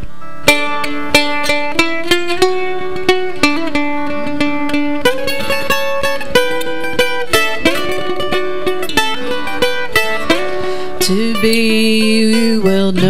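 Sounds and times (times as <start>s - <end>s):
acoustic guitar: 0.0s - 13.0s
mandolin picking melody: 0.0s - 13.0s.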